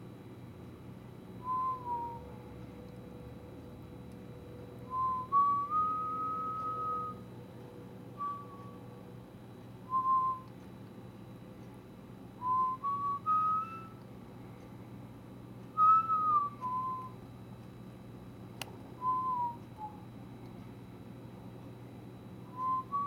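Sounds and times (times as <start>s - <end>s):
steady low hum: 0.0s - 23.0s
person whistling a slow tune: 1.4s - 2.4s, 4.8s - 7.2s, 8.1s - 8.9s, 9.8s - 10.6s, 12.4s - 14.0s, 15.7s - 17.2s, 19.0s - 20.0s, 22.5s - 23.0s.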